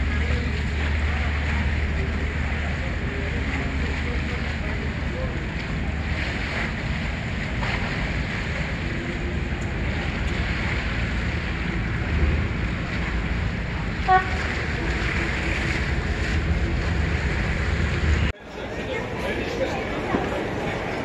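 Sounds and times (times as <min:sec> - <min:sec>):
boat engine rumble: 0:00.0 - 0:21.0
choppy water: 0:00.0 - 0:21.0
wind: 0:00.0 - 0:21.0.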